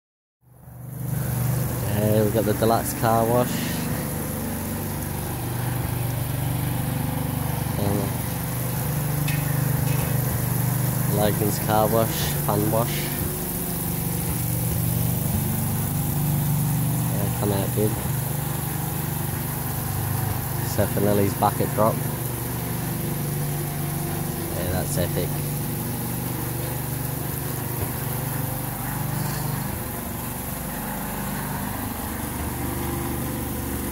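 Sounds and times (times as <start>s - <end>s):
small engine humming: 0.6s - 33.9s.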